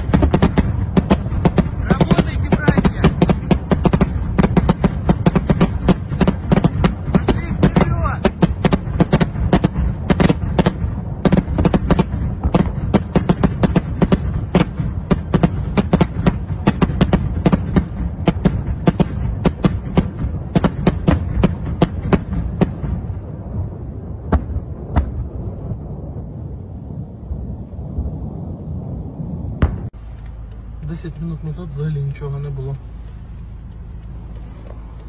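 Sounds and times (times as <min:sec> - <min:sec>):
sharp cracks and bangs: 0:00.0 - 0:26.2, 0:29.6 - 0:30.6
steady low rumble: 0:00.0 - 0:35.0.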